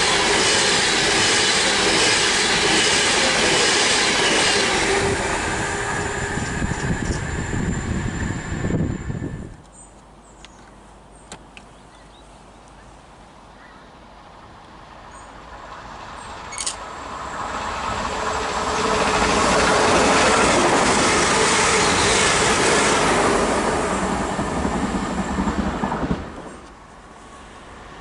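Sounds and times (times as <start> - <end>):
train cars rattling: 0.0 - 9.3, 15.9 - 26.6
train passing at speed: 0.0 - 9.6, 14.2 - 28.0.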